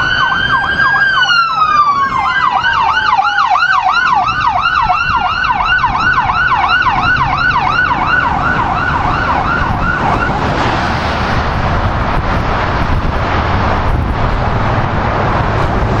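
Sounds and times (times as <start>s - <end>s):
electronic siren yelping: 0.0s - 10.6s
road noise: 0.0s - 16.0s.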